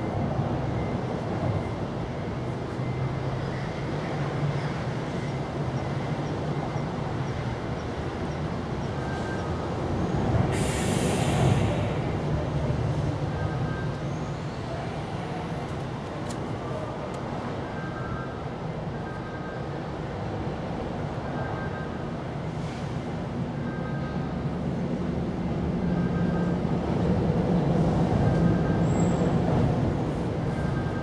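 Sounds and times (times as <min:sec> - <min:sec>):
loud hiss: 0:10.5 - 0:11.8.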